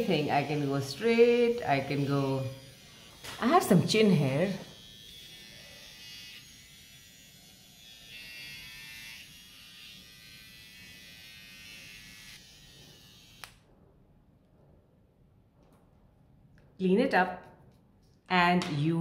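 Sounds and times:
face hair remover buzzing: 0.0s - 13.7s.

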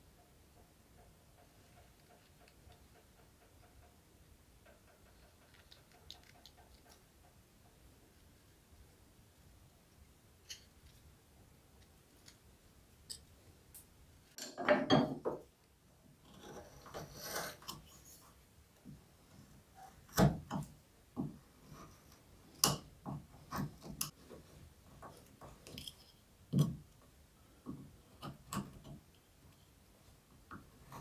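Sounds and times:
gouge scraping wood: 16.2s - 18.2s.

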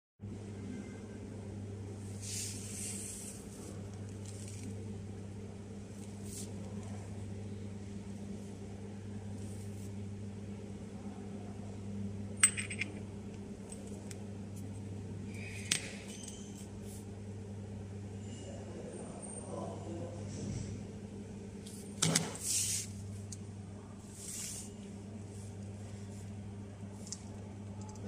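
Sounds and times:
steady low hum: 0.2s - 28.0s
metal bolts clinking: 12.4s - 13.0s.

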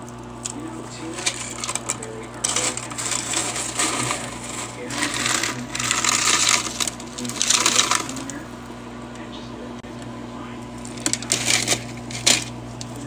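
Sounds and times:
ice maker humming: 0.0s - 13.0s
scoop scraping through ice: 1.0s - 8.3s.

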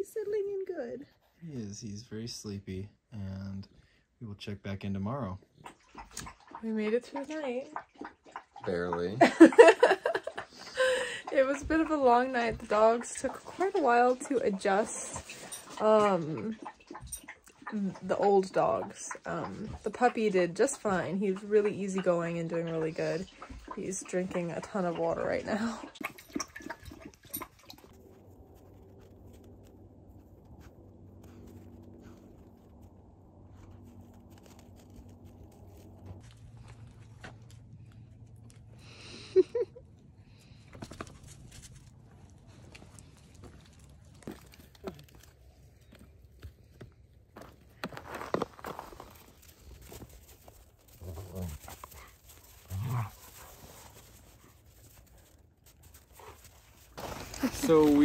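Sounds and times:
puppy lapping water: 5.4s - 9.2s, 11.1s - 28.5s.

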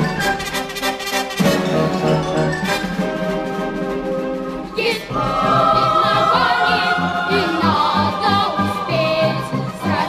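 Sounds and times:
orchestral accompaniment: 0.0s - 10.0s
boys singing: 4.8s - 10.0s.

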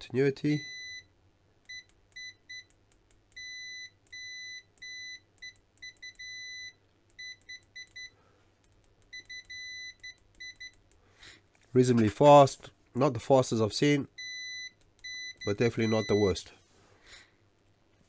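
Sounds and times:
multimeter continuity beep: 0.6s - 8.2s, 9.0s - 10.8s, 14.2s - 16.4s.

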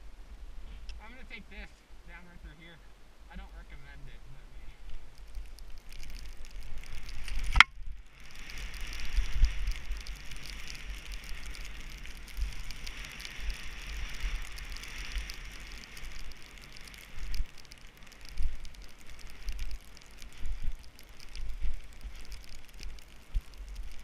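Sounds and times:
wind rumbling on microphone: 0.0s - 24.0s
skis hissing over snow: 6.1s - 22.9s
sharp click: 7.5s - 7.7s.

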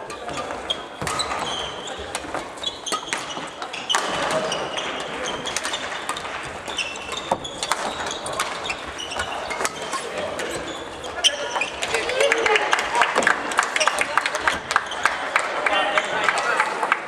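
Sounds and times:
racket striking shuttlecock: 0.0s - 10.6s
shoes squeaking on wooden floor: 0.0s - 12.6s, 13.2s - 15.3s.

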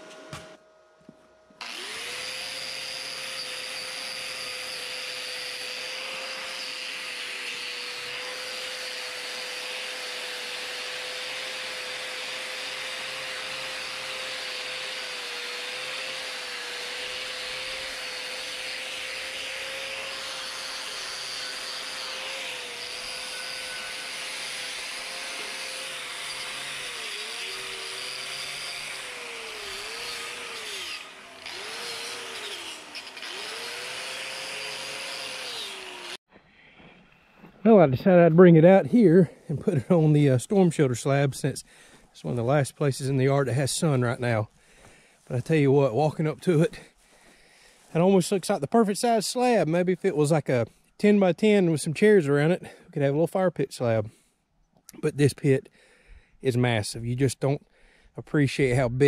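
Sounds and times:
angle grinder grinding steel: 1.6s - 36.2s.

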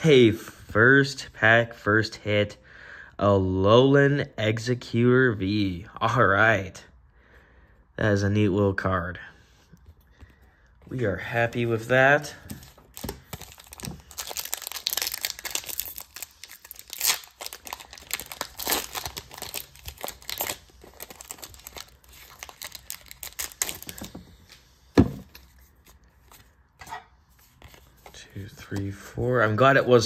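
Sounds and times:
foil wrapper tearing and crinkling: 12.8s - 24.1s.

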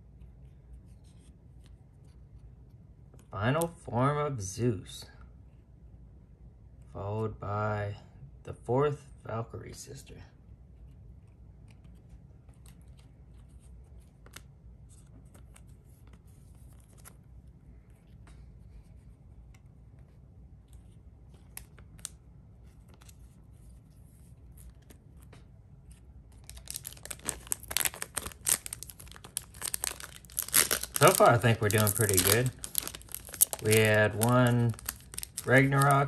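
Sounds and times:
trading cards being handled: 10.6s - 36.0s
foil wrapper tearing and crinkling: 26.4s - 36.0s.

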